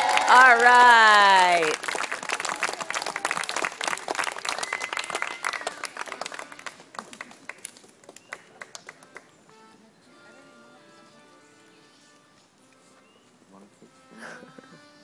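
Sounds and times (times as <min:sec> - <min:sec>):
crowd applauding: 0:00.0 - 0:09.3.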